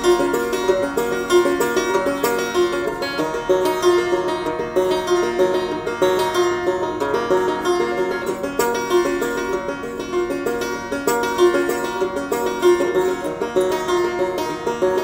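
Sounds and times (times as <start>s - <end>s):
banjo plucking: 0.0s - 15.0s.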